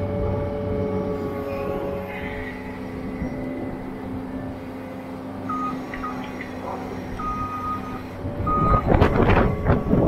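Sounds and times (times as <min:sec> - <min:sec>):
loader engine running: 0:00.0 - 0:10.0
back-up alarm beeping: 0:05.5 - 0:06.4, 0:07.2 - 0:10.0.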